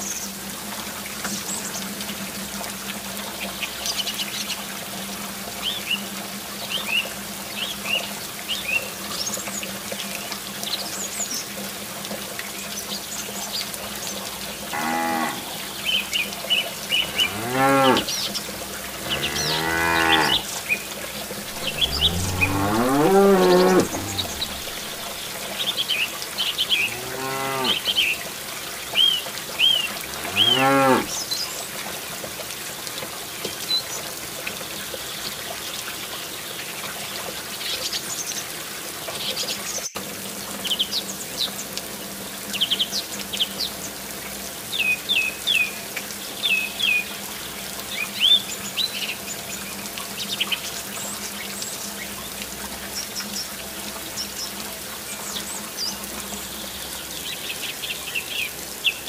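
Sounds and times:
cattle mooing: 0:14.7 - 0:15.5, 0:17.1 - 0:18.1, 0:19.0 - 0:20.5, 0:21.5 - 0:25.2, 0:26.9 - 0:27.8, 0:30.1 - 0:31.1
water pouring: 0:16.2 - 0:27.5
birds chirping: 0:19.0 - 0:20.5, 0:21.4 - 0:25.4, 0:29.6 - 0:31.1.

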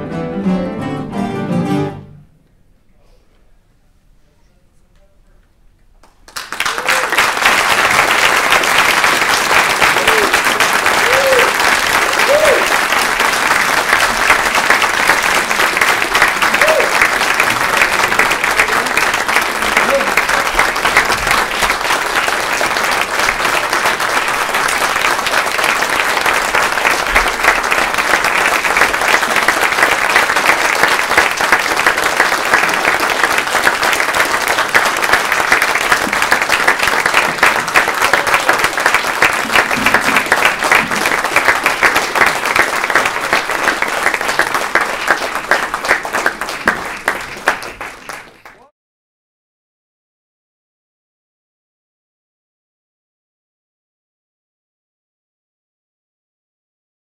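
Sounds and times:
people applauding: 0:06.0 - 0:48.7.

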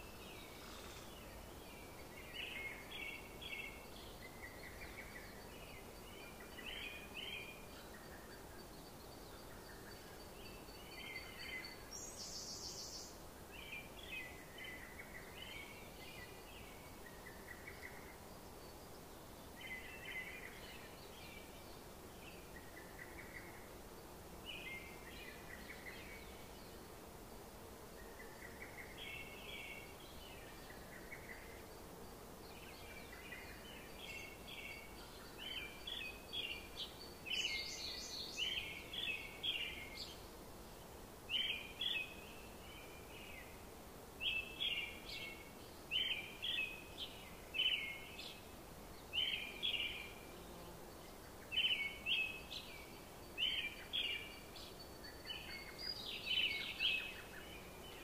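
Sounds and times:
bird chirping: 0:51.2 - 0:58.0.

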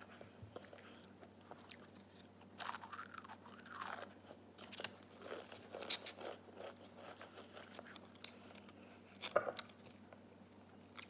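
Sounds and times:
potato chip crunching: 0:01.7 - 0:09.3.

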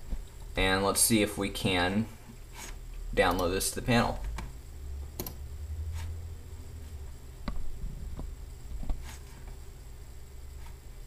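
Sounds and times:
low steady hum: 0:00.0 - 0:11.0
computer mouse clicks: 0:05.2 - 0:05.4.

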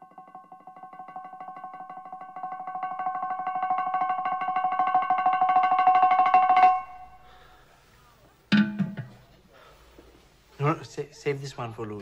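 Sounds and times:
plucked string tremolo: 0:00.0 - 0:07.3.

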